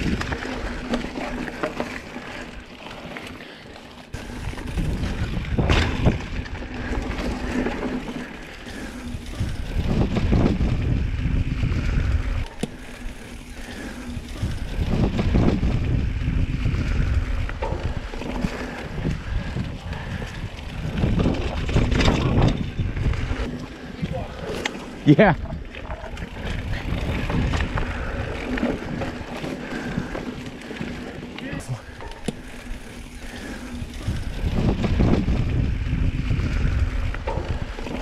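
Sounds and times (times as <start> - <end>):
wind buffeting microphone: 0.0 - 1.3, 4.2 - 38.0
bike tyres rumbling over dirt: 0.0 - 38.0
bike knocking over bumps: 4.5 - 8.0.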